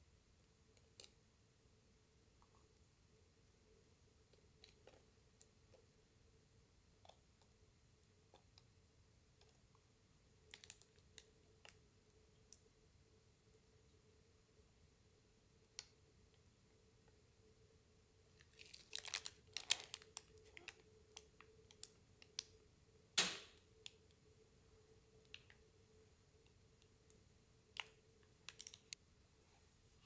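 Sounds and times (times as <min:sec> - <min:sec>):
faint steady hum: 0:00.0 - 0:30.0
small crackles and clicks: 0:00.7 - 0:01.2, 0:10.4 - 0:12.7, 0:18.3 - 0:22.6, 0:25.2 - 0:25.7, 0:26.4 - 0:29.0.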